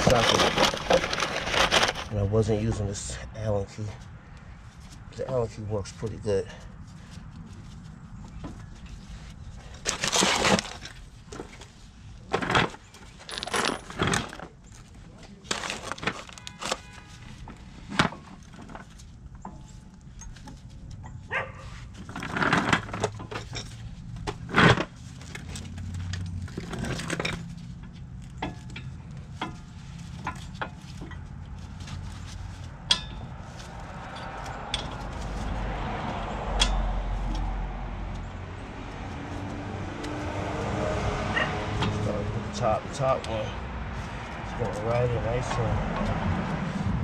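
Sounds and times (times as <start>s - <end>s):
hand tools clinking and knocking: 0.0s - 2.8s, 12.3s - 16.9s, 22.0s - 35.4s, 36.6s - 37.5s.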